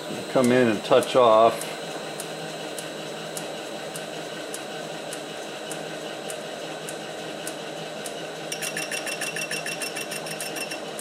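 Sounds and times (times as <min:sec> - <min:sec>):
metal lathe running: 0:00.0 - 0:11.0
fast ringing clicking: 0:08.5 - 0:10.9.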